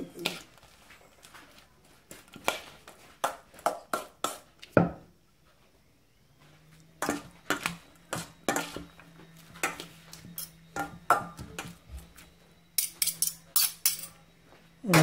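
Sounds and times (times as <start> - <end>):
metal forks clinking in steel bowl: 12.8 - 14.2.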